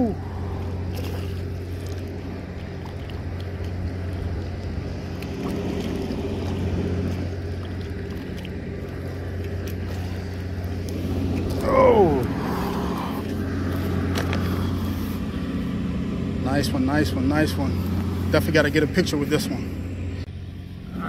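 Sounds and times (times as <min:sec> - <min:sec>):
low motor hum: 0:00.0 - 0:21.0
fish splashing at water surface: 0:00.3 - 0:11.6.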